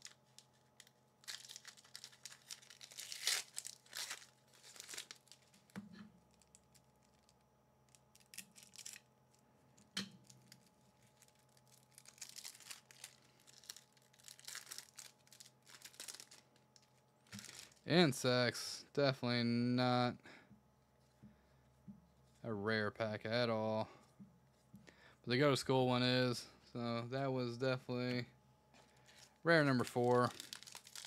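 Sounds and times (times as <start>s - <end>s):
foil wrapper tearing and crinkling: 0.0s - 9.0s, 10.2s - 17.8s, 29.8s - 31.0s.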